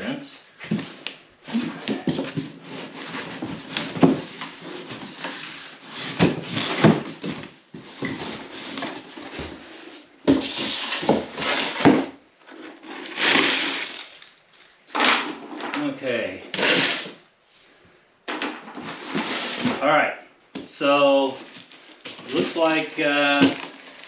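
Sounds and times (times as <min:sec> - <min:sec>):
plastic strapping rustling: 0:21.4 - 0:24.0.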